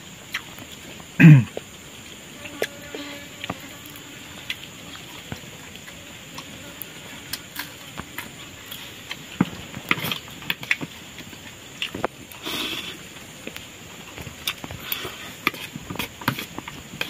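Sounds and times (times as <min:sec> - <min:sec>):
chewing: 0:02.4 - 0:17.0.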